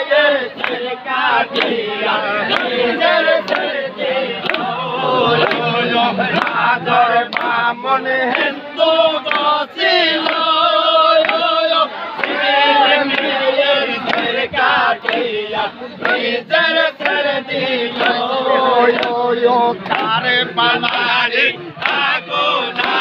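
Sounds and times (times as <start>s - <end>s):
men chanting in unison: 0.0s - 23.0s
hands clapping: 0.6s - 0.9s, 1.5s - 8.6s, 9.2s - 9.6s, 10.2s - 15.3s, 16.0s - 16.3s, 17.0s - 17.3s, 18.0s - 18.3s, 18.9s - 23.0s.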